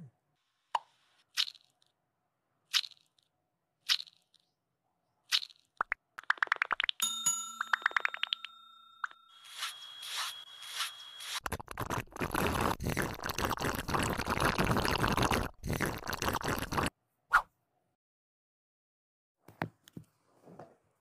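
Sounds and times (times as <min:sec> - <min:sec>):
held ringing tone: 0:07.0 - 0:11.4.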